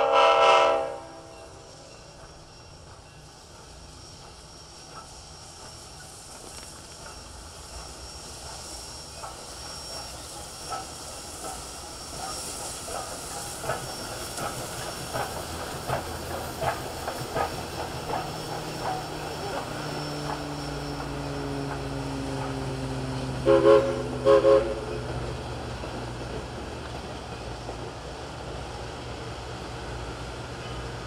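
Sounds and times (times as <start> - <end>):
steam locomotive hissing: 0.0 - 31.0
wheels clicking over rail joints: 2.2 - 23.6.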